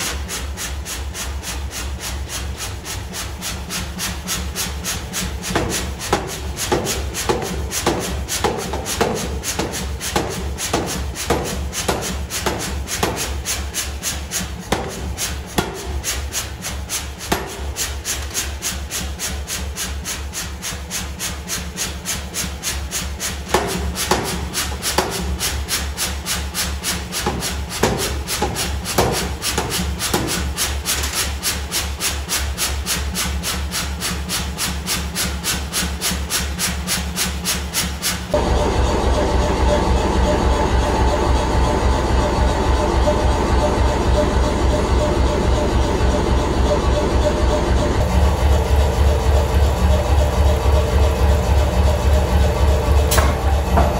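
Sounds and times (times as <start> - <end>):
power hammer striking hot steel: 0.0 - 34.0, 51.0 - 53.9.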